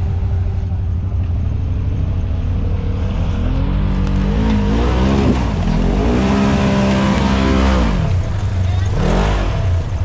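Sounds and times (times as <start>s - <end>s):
utv engine revving: 0.0s - 10.0s
tyres churning mud: 3.1s - 10.0s.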